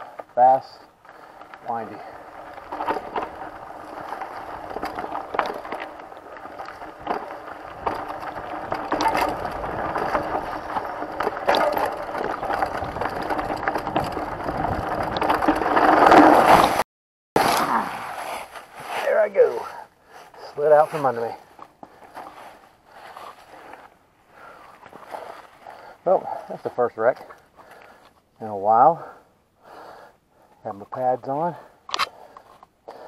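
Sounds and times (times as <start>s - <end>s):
bike clicks and rattles: 0.0s - 16.8s
tyres rushing over dirt and leaves: 0.0s - 16.8s.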